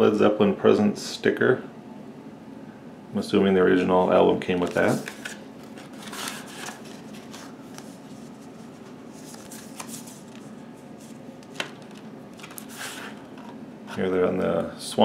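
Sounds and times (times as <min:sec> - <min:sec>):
faint steady hum: 0:00.0 - 0:15.0
cardboard sleeves rustling and scraping: 0:04.6 - 0:14.1.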